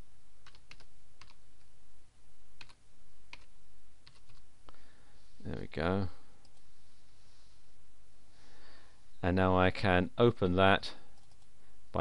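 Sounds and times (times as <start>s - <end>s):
low steady hum: 0.0s - 12.0s
typing on computer keyboard: 0.4s - 1.4s, 2.6s - 4.4s, 11.2s - 11.5s.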